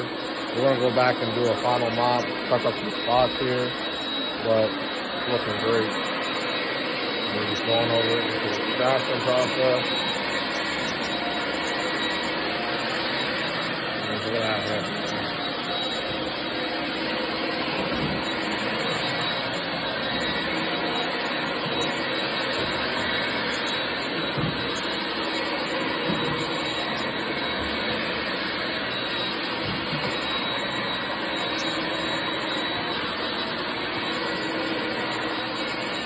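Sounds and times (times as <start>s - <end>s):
vacuum motor running: 0.0s - 36.0s.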